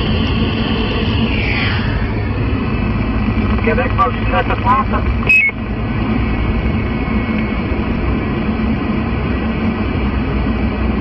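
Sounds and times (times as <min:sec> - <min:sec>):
car driving rumble: 0:00.0 - 0:11.0
radio static hiss: 0:02.2 - 0:05.8.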